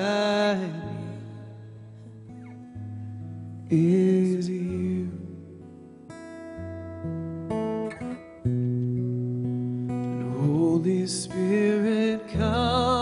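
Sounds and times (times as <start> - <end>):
person singing: 0.0 - 1.6, 3.7 - 5.4, 10.2 - 13.0
acoustic guitar strumming: 0.0 - 13.0.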